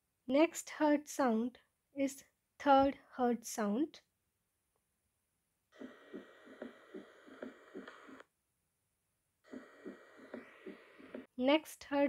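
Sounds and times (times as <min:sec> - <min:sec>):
soft low heart thuds: 0:05.8 - 0:08.2, 0:09.5 - 0:11.3.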